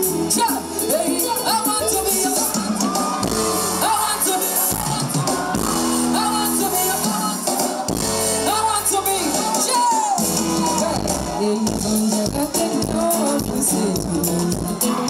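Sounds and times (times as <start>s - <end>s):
bass guitar: 0.0s - 15.0s
woman singing into a microphone: 0.0s - 15.0s.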